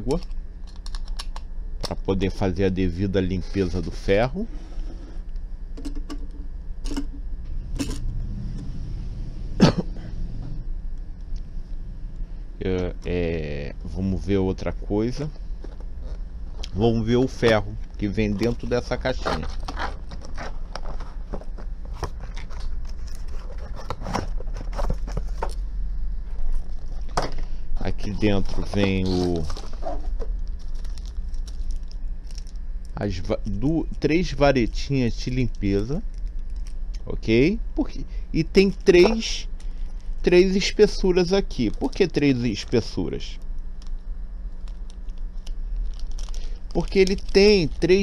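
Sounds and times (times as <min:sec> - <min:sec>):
low steady hum: 0:00.0 - 0:48.0
person coughing: 0:09.6 - 0:10.2.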